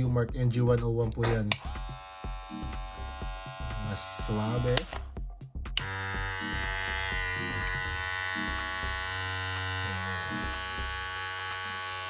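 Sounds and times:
hair clipper motor buzz: 1.5 - 5.1, 5.8 - 12.0.

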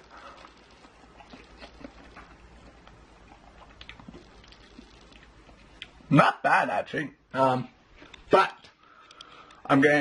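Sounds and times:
man chewing food: 0.0 - 6.1.

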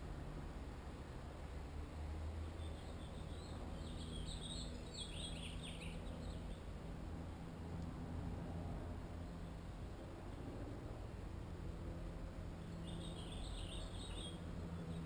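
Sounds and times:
small bird chirping: 2.5 - 6.7, 12.6 - 15.0.

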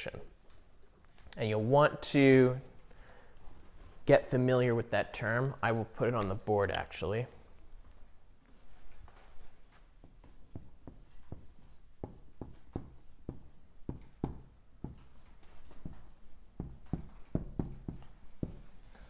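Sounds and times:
marker writing on whiteboard: 9.9 - 18.8.

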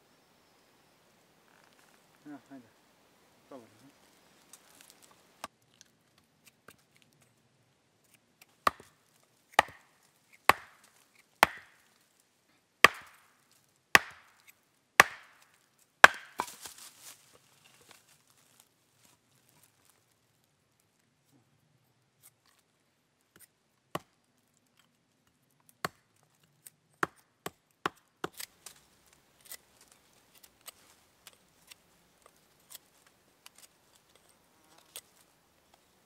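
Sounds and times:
hatchet chopping wood: 8.6 - 9.9, 10.5 - 11.8, 12.8 - 13.3, 13.9 - 16.7, 25.8 - 26.0, 27.0 - 28.5.

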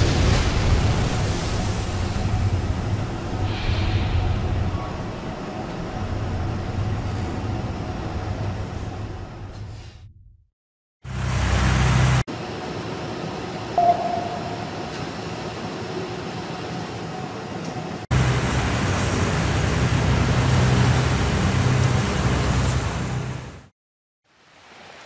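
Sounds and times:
sea: 0.0 - 9.4, 12.4 - 16.1, 18.1 - 25.0
warship engines rumbling: 0.0 - 10.3, 11.1 - 23.7
short tone: 13.8 - 14.7.

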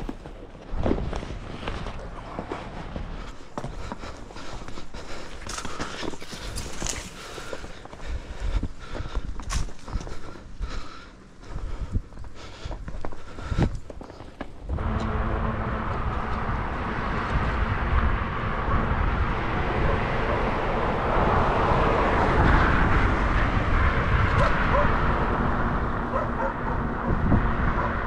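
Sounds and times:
wind buffeting microphone: 6.2 - 28.0.

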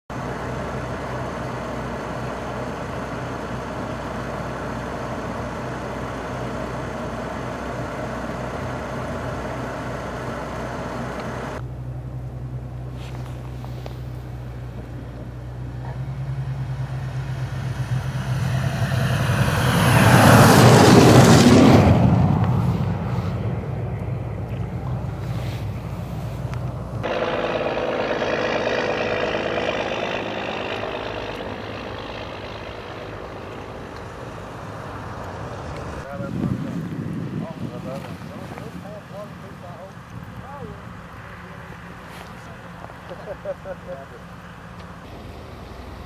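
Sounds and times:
vehicle tyres hissing through slush: 12.6 - 23.9, 24.7 - 27.2, 37.6 - 46.0
steady rushing noise with hum: 16.1 - 27.9, 28.6 - 39.5.

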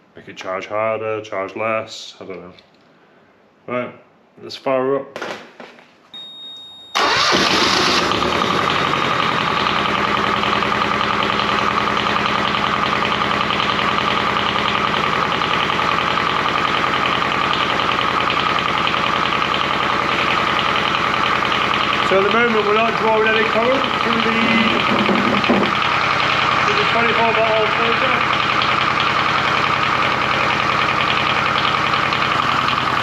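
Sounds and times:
small generator engine idling: 7.0 - 33.0.

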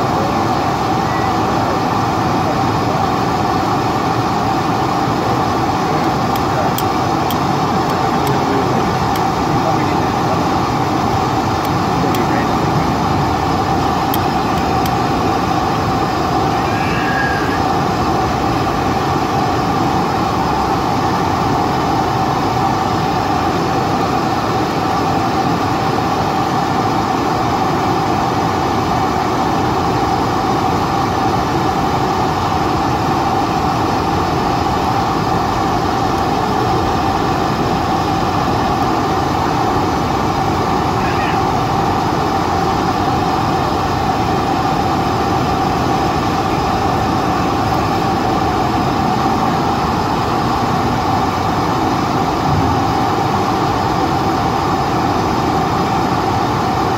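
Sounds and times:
aircraft cabin rumble: 0.0 - 21.9, 34.6 - 54.0
jet engine whine: 0.0 - 56.9.

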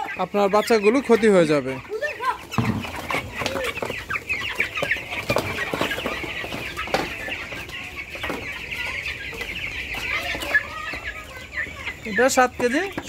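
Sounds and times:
chicks peeping: 0.0 - 13.0
crate knocks: 2.5 - 3.2.

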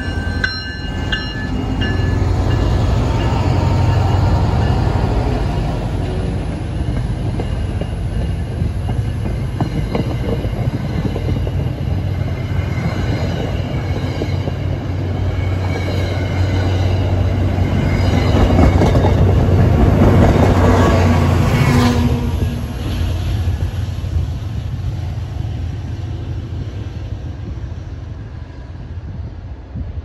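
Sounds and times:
train wheels rumbling and clicking: 0.0 - 28.4
diesel locomotive engine: 0.0 - 30.0.

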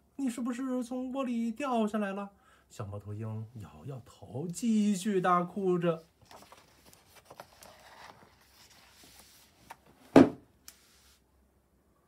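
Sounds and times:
paper page turning: 6.2 - 10.0.

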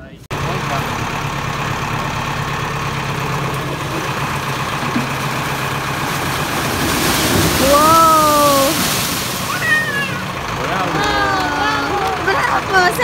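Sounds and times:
tractor engine running: 0.0 - 13.0
corn cobs dumping from hopper: 0.4 - 12.4.

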